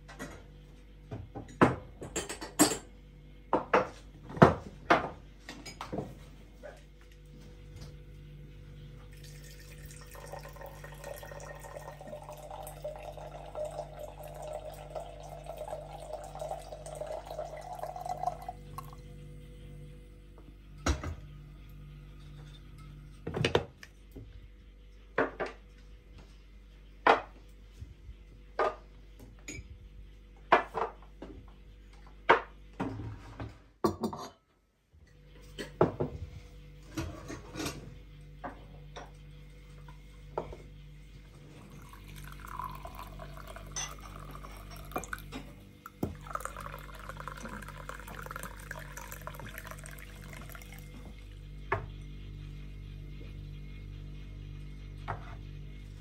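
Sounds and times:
hot water pouring into a mug: 9.1 - 19.1, 41.5 - 51.3.

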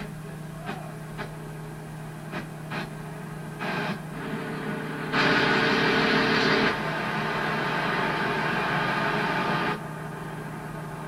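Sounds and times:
truck engine running: 3.6 - 11.0.

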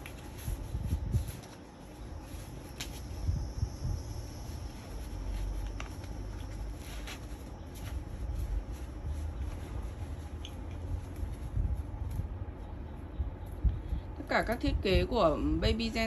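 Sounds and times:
fabric rustling: 0.0 - 12.7
low steady rumble: 0.0 - 16.0.

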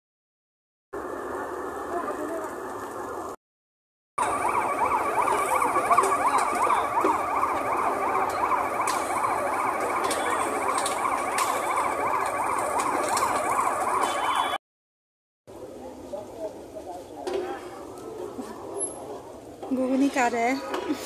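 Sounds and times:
yelping siren-like tone: 4.2 - 14.6.

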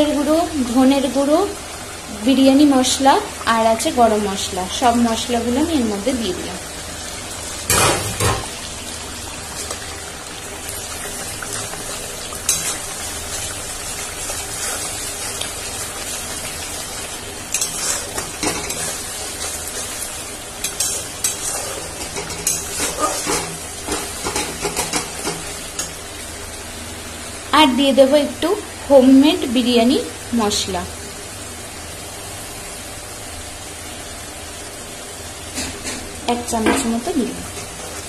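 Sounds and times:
spices sizzling in oil: 0.0 - 38.0
metal spatula scraping a pan: 17.5 - 20.0, 20.6 - 25.4.

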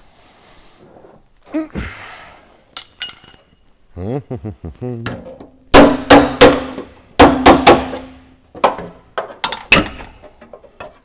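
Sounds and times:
hammer striking steel panel: 5.8 - 8.3.

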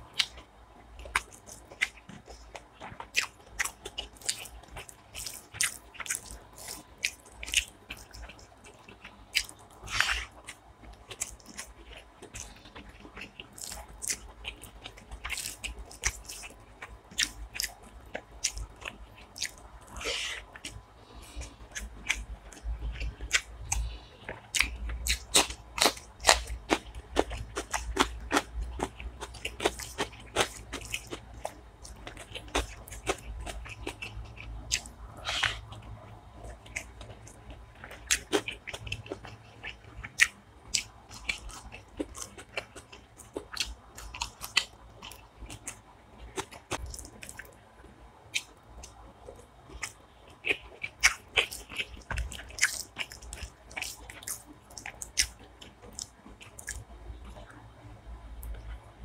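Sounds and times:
wet chewing clicks and smacks: 1.0 - 47.6, 48.3 - 57.6.

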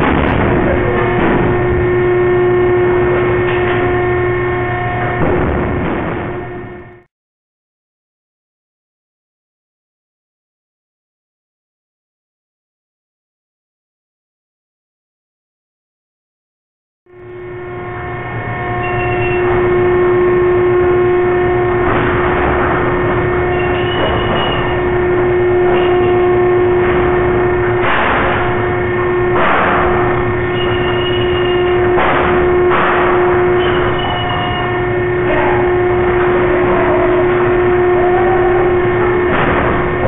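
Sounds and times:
metal bangs and clatters: 0.0 - 7.0, 18.1 - 40.0
machinery humming: 0.0 - 7.1, 17.1 - 40.0
high squeals: 17.2 - 40.0.

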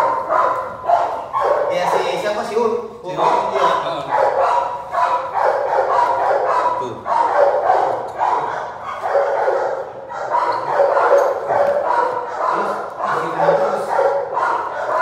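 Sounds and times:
puppy yipping and growling: 3.2 - 15.0.

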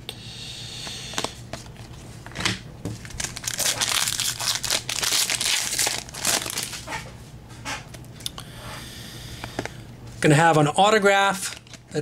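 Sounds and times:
foil wrapper crinkling: 3.0 - 7.0, 11.2 - 12.0.

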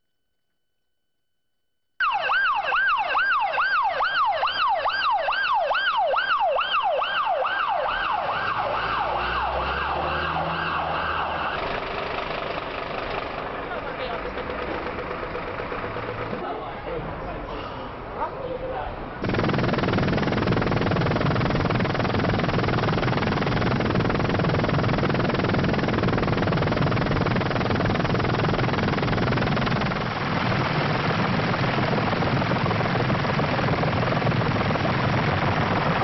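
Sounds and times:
helicopter engine and rotor: 7.2 - 16.5, 19.2 - 36.0.

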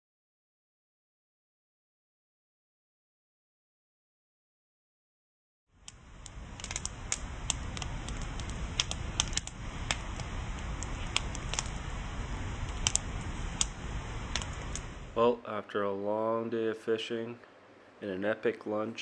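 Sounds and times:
crackling clicks and pops: 5.8 - 15.2
low rumble: 5.8 - 15.4.

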